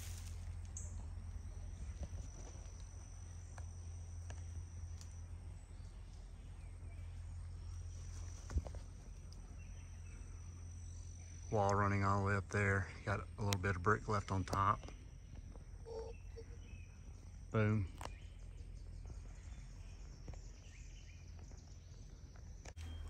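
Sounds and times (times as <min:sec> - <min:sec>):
insects singing high-pitched: 0:10.5 - 0:18.8.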